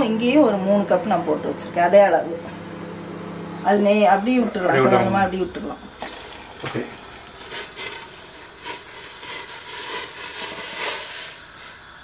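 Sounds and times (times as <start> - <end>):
batter pouring into water: 5.8 - 12.0.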